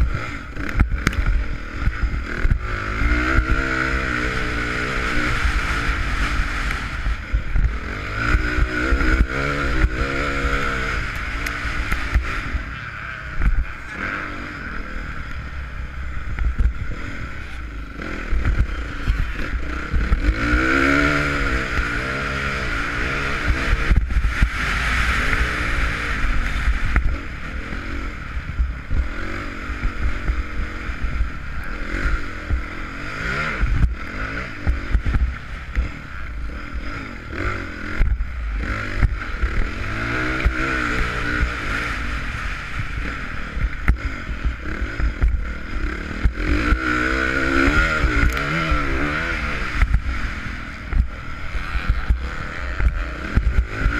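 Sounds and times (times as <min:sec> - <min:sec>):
motocross bike engine revving: 0:00.0 - 0:53.9.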